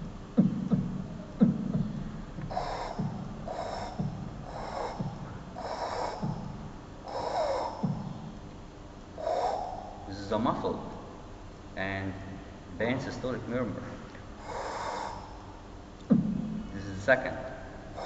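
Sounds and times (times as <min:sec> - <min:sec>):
man imitating heartbeats: 0:00.0 - 0:08.5, 0:09.1 - 0:18.0.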